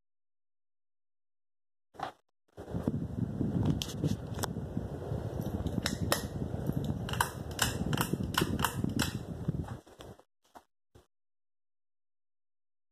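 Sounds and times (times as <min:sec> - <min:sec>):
sharp clicks: 0:05.7 - 0:09.2.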